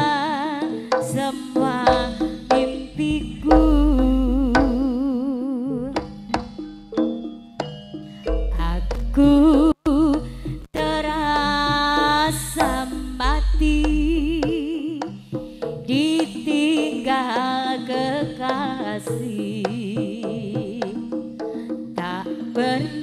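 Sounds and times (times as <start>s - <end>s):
drum strokes: 0.0s - 5.2s, 5.8s - 23.0s
vibrato lead melody: 1.4s - 15.6s
deep bass: 2.9s - 5.1s, 8.3s - 11.5s, 12.6s - 14.7s.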